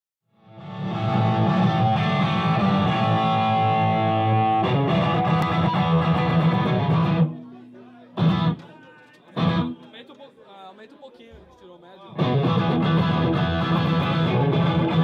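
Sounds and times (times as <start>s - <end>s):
electric guitar chords: 0.4s - 7.4s, 8.2s - 8.6s, 9.4s - 9.8s, 12.2s - 15.0s.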